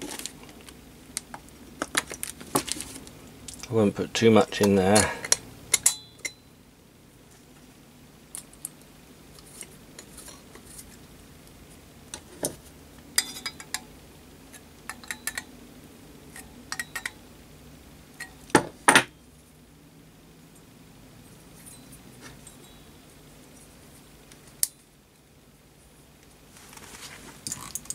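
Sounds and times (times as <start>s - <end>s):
small metallic clicks and clinks: 16.4s - 17.2s.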